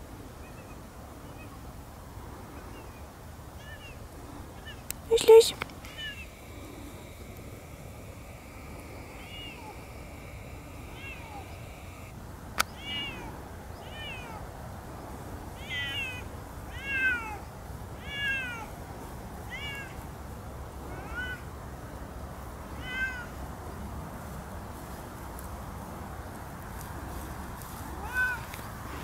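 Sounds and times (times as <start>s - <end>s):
cats meowing loudly: 4.6s - 14.5s, 15.5s - 18.7s, 19.4s - 20.0s, 20.8s - 21.5s, 22.7s - 23.4s, 27.9s - 28.6s.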